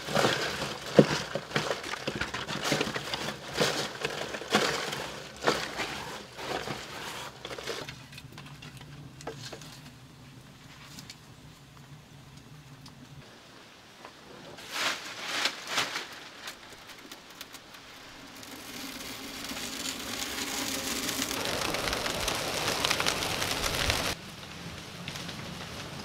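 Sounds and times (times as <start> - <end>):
dry leaves rustling and crunching: 0.0 - 8.2, 14.6 - 26.0
leaf fire crackling: 0.0 - 26.0.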